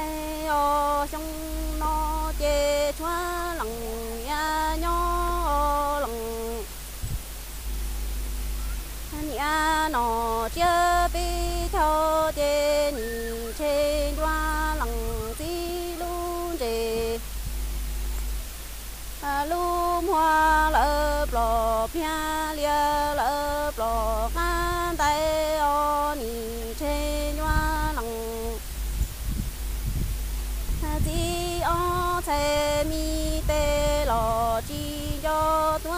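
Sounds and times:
woman singing unaccompanied: 0:00.0 - 0:17.7, 0:19.0 - 0:28.9, 0:30.7 - 0:35.9
low steady rumble: 0:00.0 - 0:35.9.

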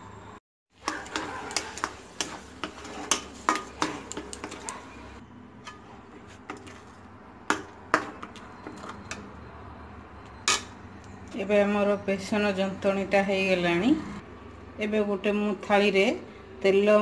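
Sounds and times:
spatula scraping metal pan: 0:00.8 - 0:09.3.

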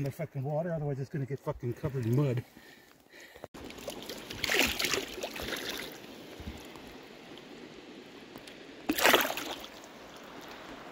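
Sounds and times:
flowing stream: 0:01.7 - 0:10.9
splashing in shallow water: 0:03.6 - 0:06.7, 0:08.8 - 0:10.8.

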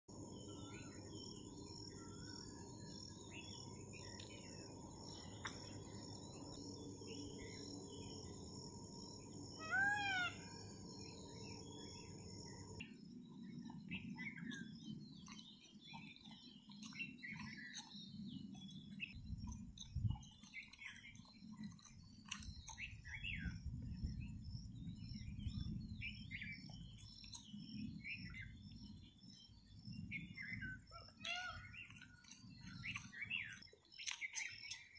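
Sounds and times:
low background hum: 0:00.1 - 0:33.7
small birds chirping: 0:00.1 - 0:34.9
loud bird call: 0:09.6 - 0:10.7.

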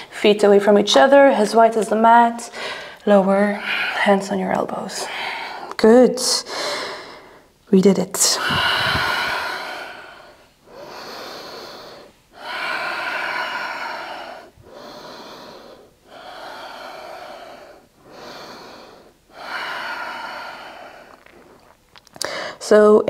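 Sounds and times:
woman breathing slowly: 0:02.5 - 0:04.1, 0:05.0 - 0:05.8, 0:06.5 - 0:07.6, 0:08.3 - 0:22.6.

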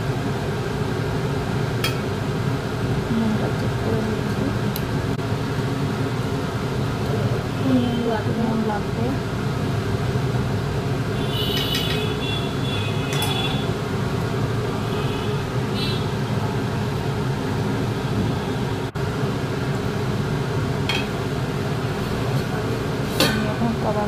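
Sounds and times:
spoon clinking against metal pot: 0:11.5 - 0:12.1, 0:13.1 - 0:13.5.

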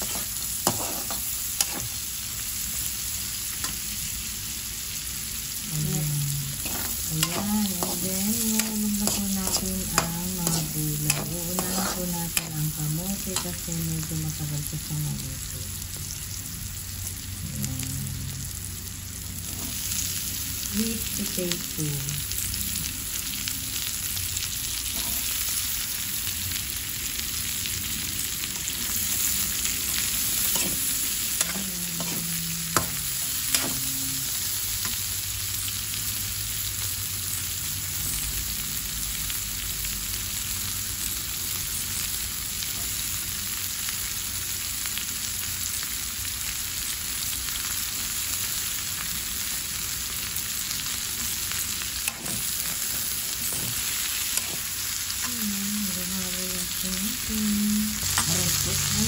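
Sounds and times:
metal spatula scraping wok: 0:00.0 - 0:02.0, 0:06.4 - 0:13.7, 0:19.4 - 0:19.9, 0:24.9 - 0:25.4, 0:28.5 - 0:35.1, 0:52.0 - 0:54.8
food sizzling in oil: 0:00.0 - 0:59.0.

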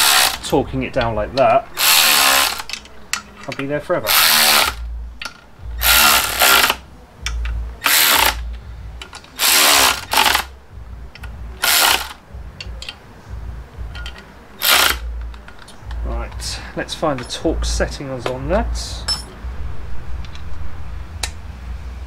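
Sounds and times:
electric ratchet spinning: 0:00.0 - 0:00.5, 0:01.8 - 0:02.8, 0:04.1 - 0:04.8, 0:05.8 - 0:06.8, 0:07.8 - 0:08.4, 0:09.4 - 0:10.5, 0:11.6 - 0:12.2, 0:14.6 - 0:15.1.

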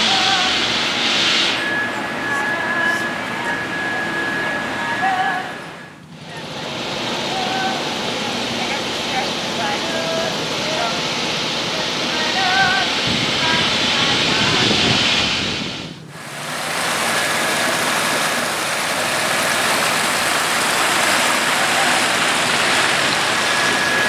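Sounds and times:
water rushing down waterfall: 0:00.0 - 0:05.6, 0:06.2 - 0:24.0
wavering whistle-like sounds: 0:00.0 - 0:06.6, 0:21.4 - 0:24.0
outdoor noise: 0:00.0 - 0:24.0.

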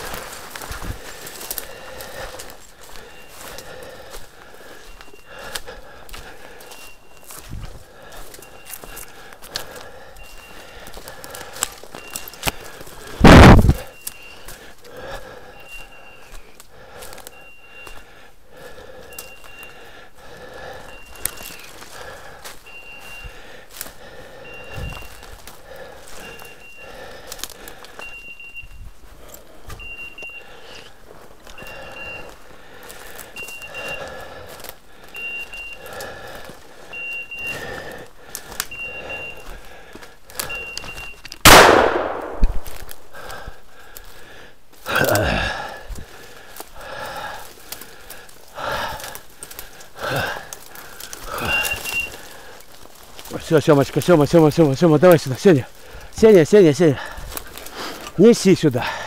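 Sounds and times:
footsteps in dry leaves: 0:00.0 - 0:15.0, 0:18.8 - 0:28.1, 0:28.8 - 0:58.7
electronic collar beeps: 0:03.0 - 0:03.6, 0:04.8 - 0:05.3, 0:06.6 - 0:07.4, 0:08.3 - 0:09.1, 0:10.2 - 0:10.9, 0:11.9 - 0:12.4, 0:13.2 - 0:14.6, 0:15.5 - 0:16.6, 0:17.3 - 0:18.1, 0:19.0 - 0:19.8, 0:20.8 - 0:21.8, 0:22.6 - 0:23.4, 0:24.4 - 0:25.4, 0:26.2 - 0:27.0, 0:28.0 - 0:28.9, 0:29.7 - 0:30.9, 0:31.5 - 0:32.4, 0:33.3 - 0:34.1, 0:35.1 - 0:35.9, 0:36.9 - 0:38.0, 0:38.7 - 0:39.6, 0:40.4 - 0:41.4, 0:51.3 - 0:52.2
twigs snapping: 0:10.8 - 0:14.6, 0:27.2 - 0:28.0, 0:38.2 - 0:38.8, 0:39.9 - 0:43.1, 0:47.4 - 0:54.1, 0:57.2 - 0:58.2
shotgun blast with echo: 0:41.4 - 0:42.8.

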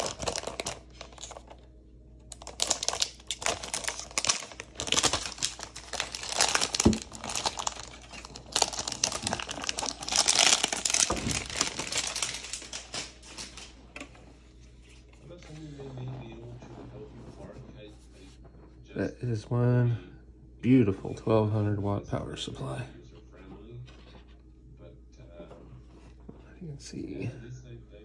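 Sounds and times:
plastic film crinkling: 0:00.0 - 0:01.7, 0:02.3 - 0:13.9.

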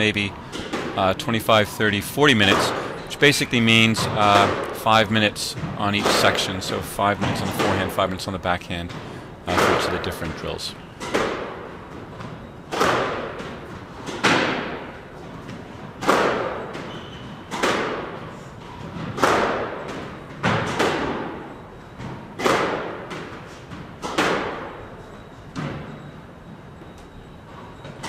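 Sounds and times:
squash ball hitting racquet and wall: 0:00.0 - 0:01.4, 0:02.3 - 0:04.8, 0:08.8 - 0:10.1, 0:11.0 - 0:25.0.

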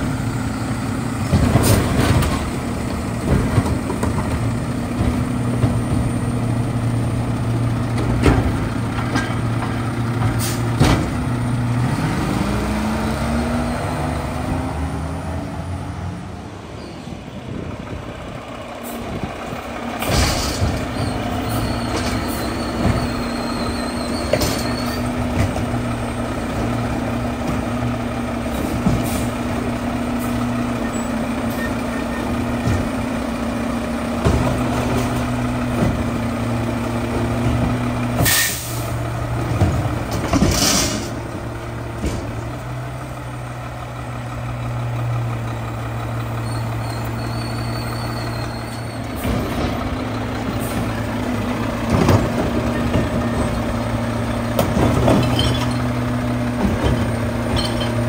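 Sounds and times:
garbage truck diesel engine: 0:00.0 - 0:58.0
air-brake hisses: 0:38.2 - 0:39.0.

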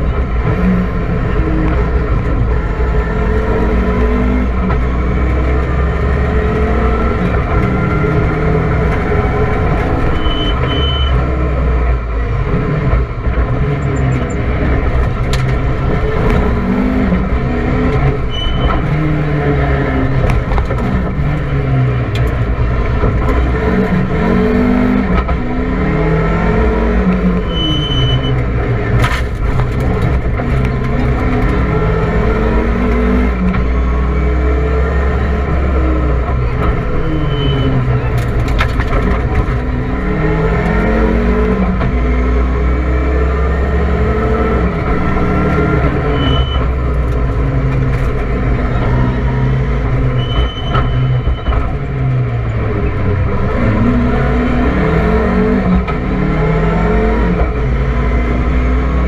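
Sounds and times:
rally car engine revving: 0:00.0 - 0:59.0
short high beeps: 0:10.2 - 0:11.1.

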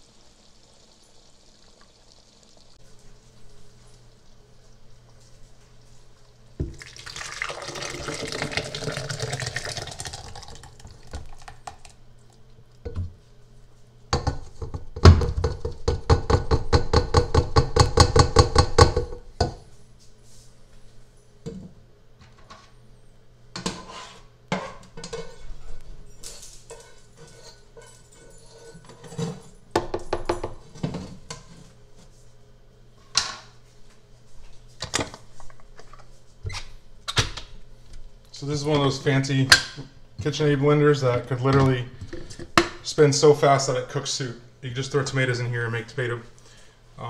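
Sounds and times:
soup pouring and glugging: 0:06.6 - 0:12.0
pot knocking on blender jar: 0:14.2 - 0:19.6.

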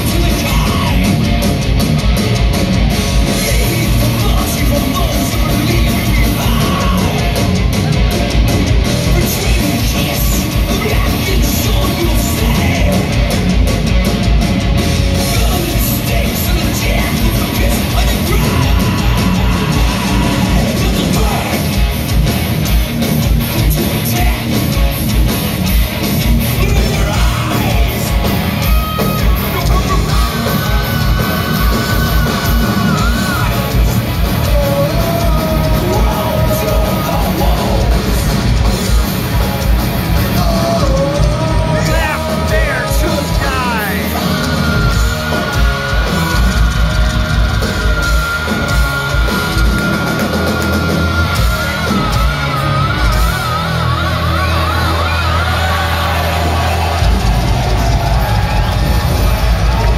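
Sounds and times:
pounding drums: 0:00.0 - 0:53.8, 0:54.6 - 0:59.9
distorted electric guitars: 0:00.0 - 0:59.9
shouted vocals: 0:15.3 - 0:21.9, 0:40.2 - 0:59.9.

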